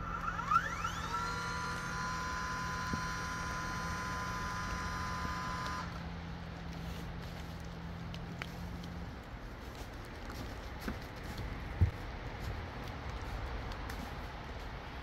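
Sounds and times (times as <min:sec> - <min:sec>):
electric winch motor whining: 0:00.0 - 0:06.1.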